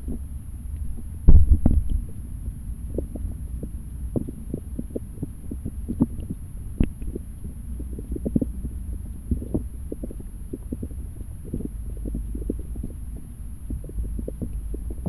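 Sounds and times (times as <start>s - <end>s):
muffled underwater stream rumble: 0.0s - 15.0s.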